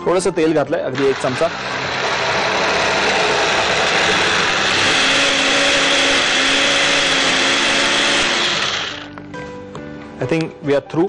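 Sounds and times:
food processor chopping: 1.0s - 9.1s.

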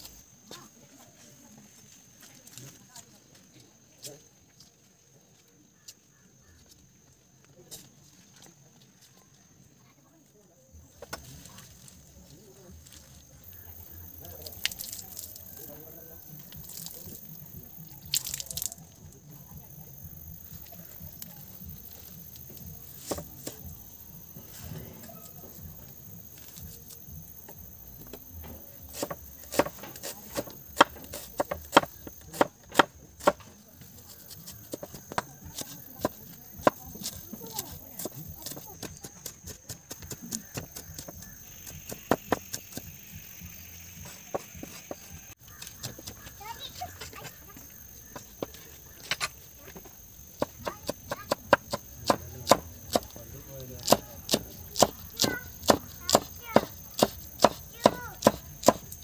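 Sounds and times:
cleaver chopping on wooden board: 28.9s - 33.5s, 50.4s - 53.2s, 53.8s - 58.9s.

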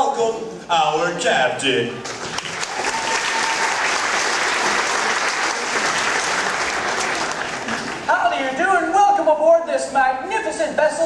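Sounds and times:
audience applauding: 2.0s - 8.1s.

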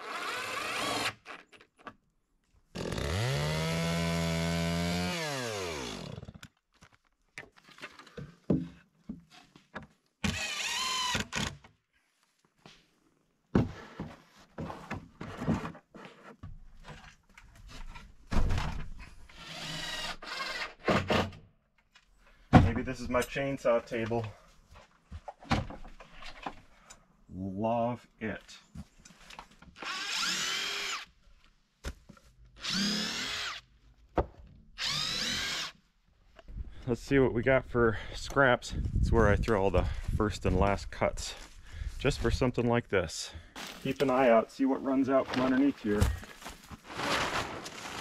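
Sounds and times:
wood knocks and thumps: 8.1s - 9.9s
cordless drill motor whine: 29.8s - 31.1s, 32.6s - 33.6s, 34.8s - 35.8s.

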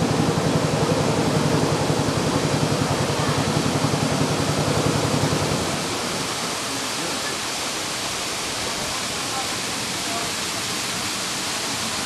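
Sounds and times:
boat motor throbbing: 0.0s - 6.9s
waterfall rushing: 0.0s - 12.0s.

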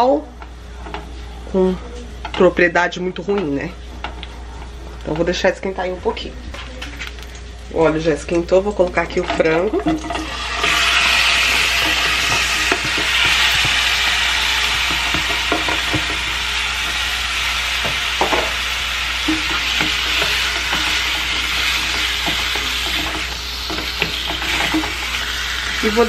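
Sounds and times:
chicken sizzling in oil: 9.0s - 26.0s
spatula tapping and scraping: 9.1s - 17.0s, 19.2s - 25.8s.

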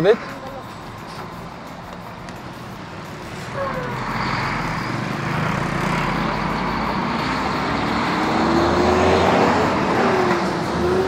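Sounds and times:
traffic hum: 0.0s - 11.0s
vehicle engine speeding past: 3.0s - 11.0s.

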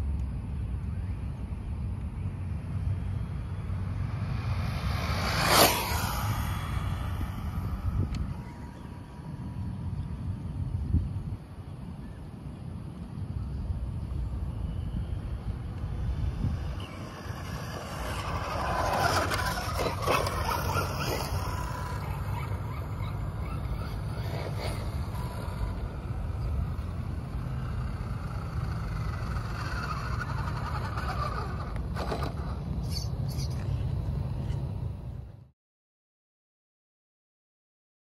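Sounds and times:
wind noise on microphone: 0.0s - 35.4s
tyres on asphalt: 0.0s - 35.5s
electric toy truck motor whine: 16.2s - 32.6s.

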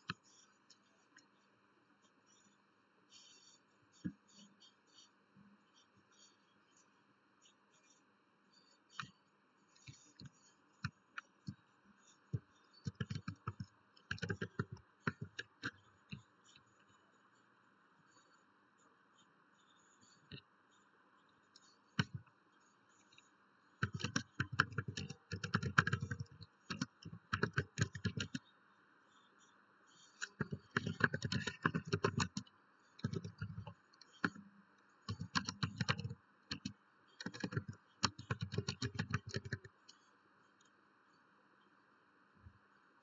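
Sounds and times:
typing on a computer keyboard: 12.3s - 16.2s, 21.6s - 22.3s, 23.8s - 28.5s, 30.2s - 40.0s.

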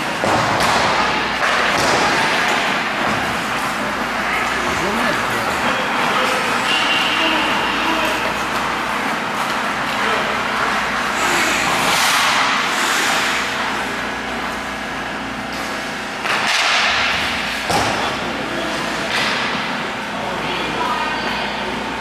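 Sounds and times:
skate blades scraping ice: 10.6s - 13.9s.

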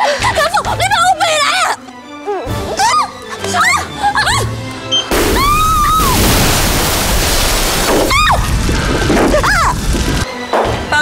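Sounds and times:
explosion blast: 5.1s - 10.2s
woman screaming: 5.3s - 6.2s, 8.1s - 8.4s.

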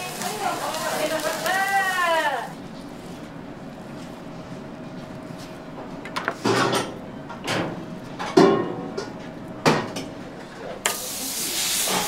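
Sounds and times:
steak sizzling on griddle: 0.0s - 2.5s, 10.9s - 12.0s.

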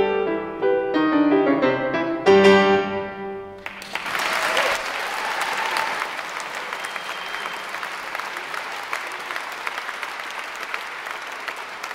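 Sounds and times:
audience applauding: 3.6s - 11.9s.

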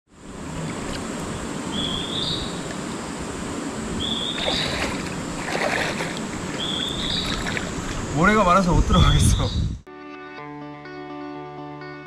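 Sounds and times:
mountain stream rushing: 0.1s - 8.6s
water splashing from wading: 0.3s - 8.2s
bird's rising whistle call: 4.0s - 4.8s.

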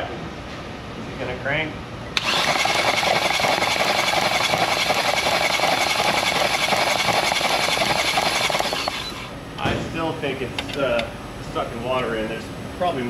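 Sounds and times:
car engine cranking: 2.2s - 9.4s.

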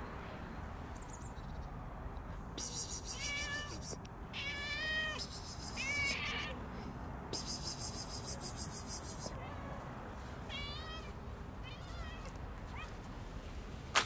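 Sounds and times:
cat meowing: 3.1s - 6.6s, 10.4s - 13.0s.

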